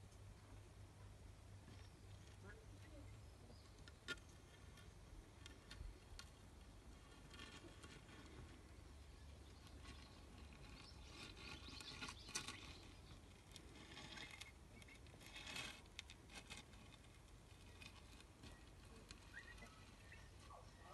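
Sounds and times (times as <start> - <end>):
faint background hiss: 0.0 - 20.9
soft rustling: 4.4 - 20.9.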